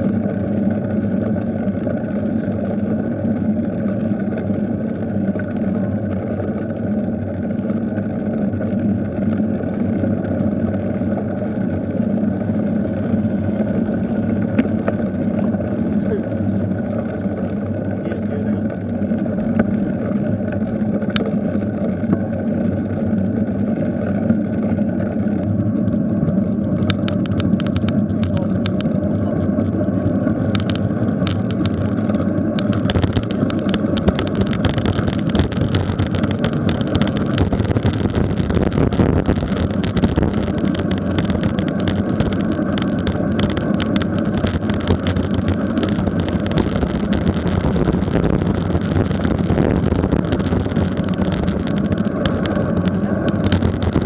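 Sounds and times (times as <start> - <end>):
bicycle tyre and road noise: 0.0 - 54.0
wind rushing over microphone: 24.7 - 54.0
light clicks and rattles: 26.8 - 29.0, 30.4 - 54.0.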